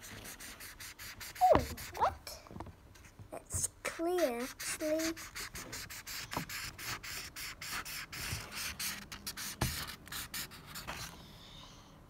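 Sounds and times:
marker scribbling on paper: 0.0s - 2.2s, 3.9s - 11.2s.

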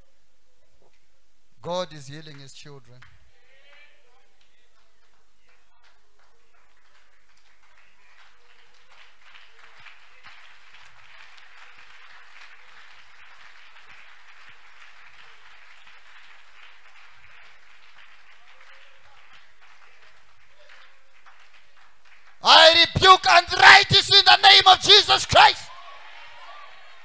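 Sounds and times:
congregation applauding: 4.8s - 27.0s
person preaching: 22.4s - 25.7s.

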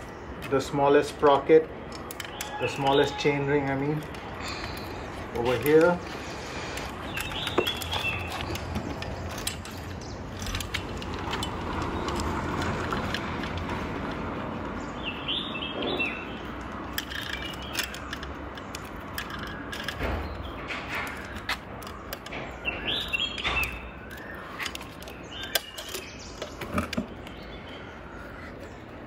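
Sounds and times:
birds chirping: 0.0s - 29.0s
bicycle chain metallic clicks: 4.0s - 14.3s, 16.5s - 26.5s.

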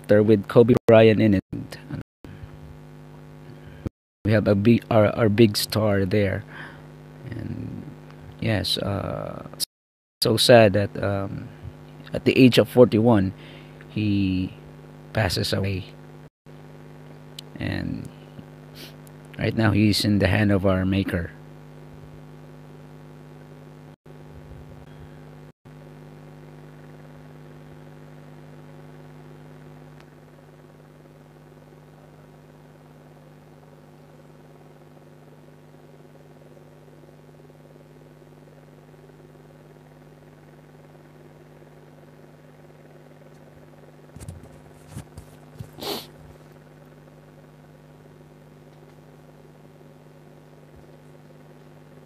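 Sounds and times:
low electrical hum: 0.0s - 52.0s
handling rustle: 44.1s - 46.4s.

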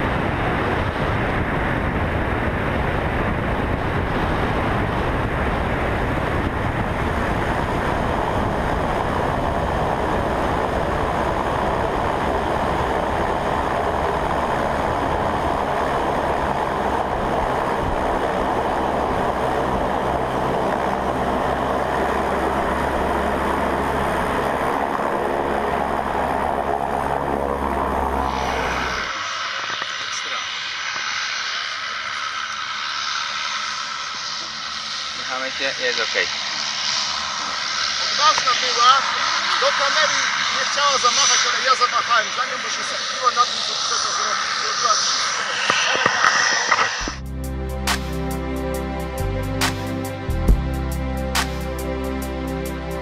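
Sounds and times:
wind on microphone: 0.0s - 33.0s, 44.4s - 51.4s
plane engine and propeller: 0.0s - 53.0s.

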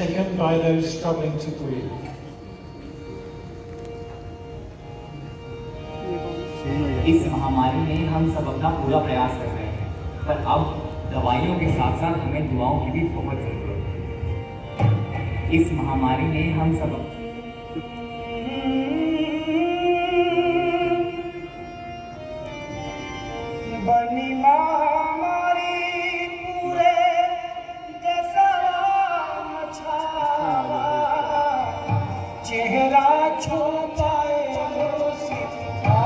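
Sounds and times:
musical accompaniment: 0.0s - 36.0s
person singing long wavering notes: 23.6s - 33.8s.

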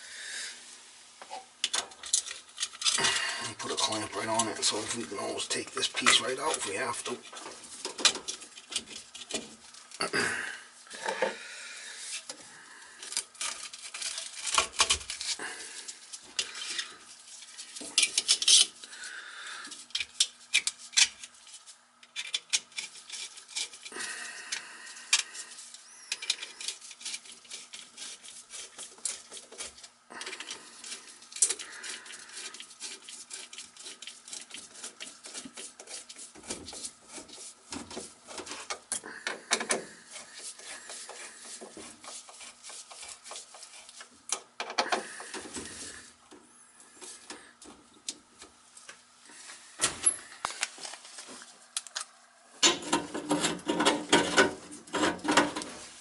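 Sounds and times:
clamp screw clicking and scraping: 17.8s - 18.8s, 25.1s - 37.5s, 51.8s - 55.7s
gloved hand rubbing drain fitting: 19.7s - 46.1s.

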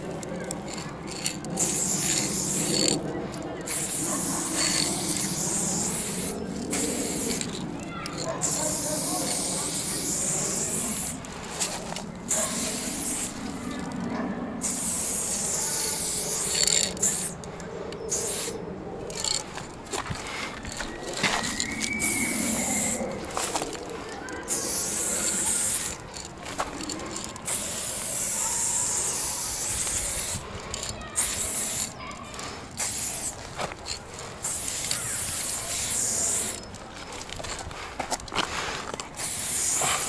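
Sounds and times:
pressure sprayer hissing: 1.6s - 2.9s, 3.7s - 7.6s, 8.4s - 11.3s, 12.3s - 13.5s, 14.6s - 17.4s, 24.5s - 26.0s, 27.4s - 30.4s, 31.2s - 32.0s, 32.7s - 33.4s, 34.4s - 36.6s, 39.2s - 40.0s.

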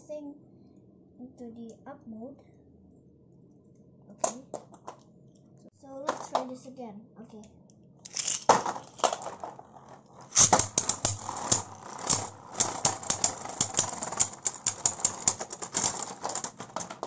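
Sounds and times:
spinning top launch rattle: 8.1s - 17.0s
spinning tops clacking: 8.1s - 17.0s.

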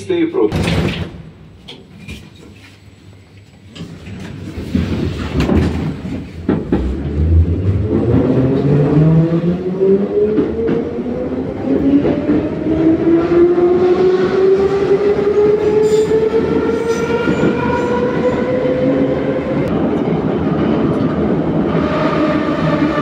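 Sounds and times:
train clunks: 3.5s - 7.9s.

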